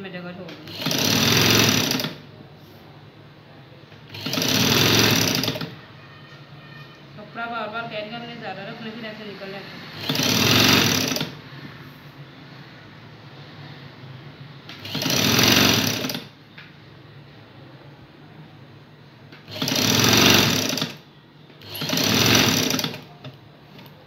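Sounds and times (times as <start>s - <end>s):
sewing machine stitching: 0.5s - 2.3s, 4.1s - 5.8s, 10.0s - 11.4s, 14.7s - 16.4s, 19.4s - 23.4s.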